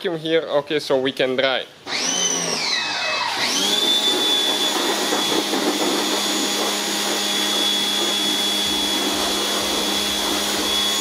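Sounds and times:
pressure washer motor whine: 1.9 - 11.0
water jet spraying plastic: 3.4 - 11.0.

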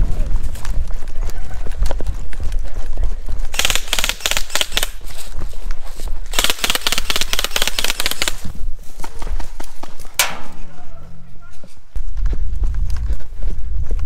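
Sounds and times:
running footsteps: 0.0 - 14.0
airsoft gun firing on full auto: 3.6 - 5.0, 6.3 - 8.4.

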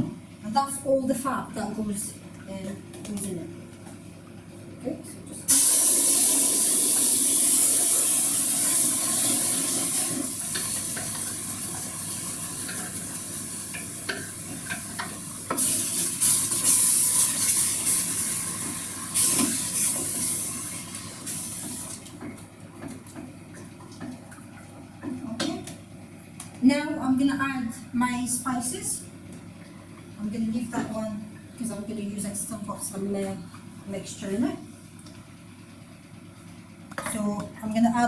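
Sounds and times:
food sizzling in hot oil: 5.5 - 21.8.

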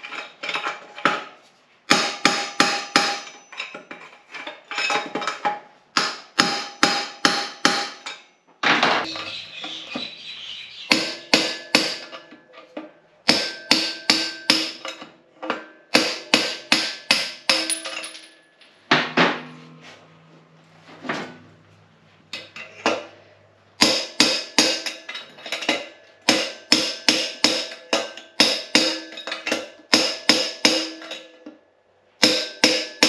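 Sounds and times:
hammer striking steel axle: 1.9 - 3.9, 6.0 - 8.3, 10.9 - 19.9, 23.8 - 31.6, 32.2 - 33.0
rough scraping noise: 18.9 - 23.4.

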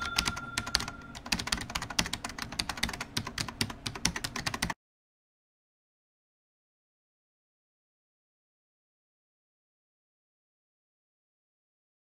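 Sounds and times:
keyboard typing clicks: 0.0 - 4.8.

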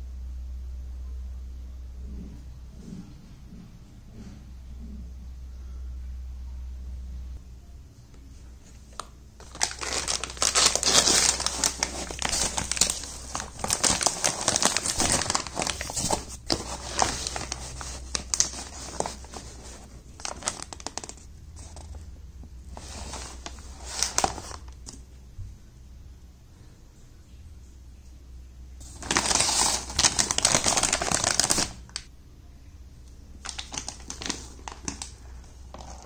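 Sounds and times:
plastic pouch crinkling: 8.9 - 22.0, 22.7 - 24.9, 28.8 - 32.1, 33.4 - 36.0.

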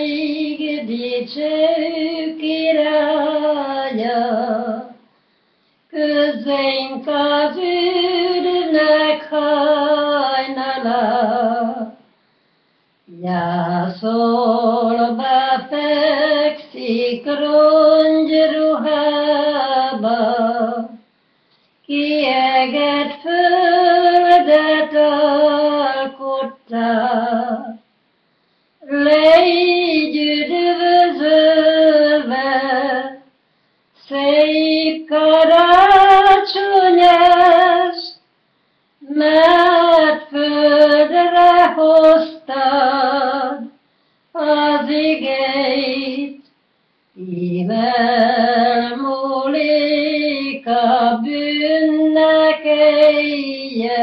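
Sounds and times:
elderly woman singing unaccompanied: 0.0 - 5.0, 5.9 - 12.0, 13.1 - 21.0, 21.9 - 27.8, 28.8 - 33.2, 34.0 - 38.2, 39.0 - 43.7, 44.4 - 46.4, 47.2 - 54.0.

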